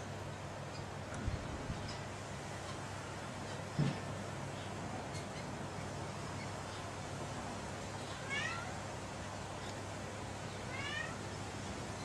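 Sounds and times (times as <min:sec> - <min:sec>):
steady background hiss: 0:00.0 - 0:12.0
animal mewing cry: 0:08.2 - 0:08.8, 0:10.7 - 0:11.3.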